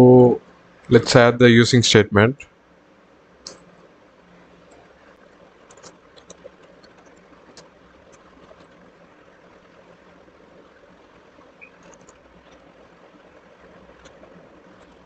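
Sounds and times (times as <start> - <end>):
low steady background hum: 0.0 - 15.0
computer keyboard clicks: 5.6 - 8.8, 11.6 - 12.6.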